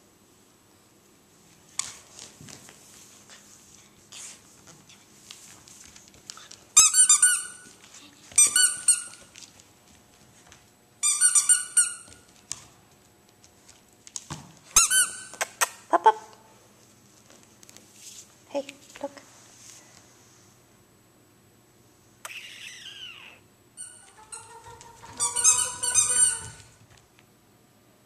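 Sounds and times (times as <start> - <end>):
faint taps and rustles: 1.7 - 3.4
squeaky dog toy squeaking: 6.8 - 7.6, 8.4 - 9.2, 11.0 - 12.2, 22.3 - 26.8.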